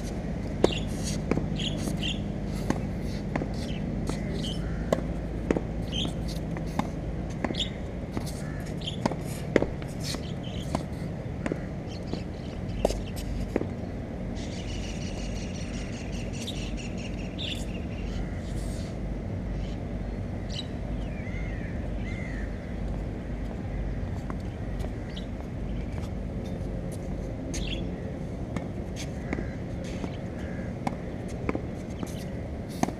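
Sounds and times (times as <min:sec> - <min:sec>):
tennis ball impacts: 0:00.0 - 0:13.8, 0:28.5 - 0:32.9
low outdoor rumble: 0:00.0 - 0:32.9
birds calling: 0:00.6 - 0:05.1, 0:05.8 - 0:09.4, 0:10.0 - 0:13.4, 0:14.3 - 0:26.2, 0:29.1 - 0:31.3.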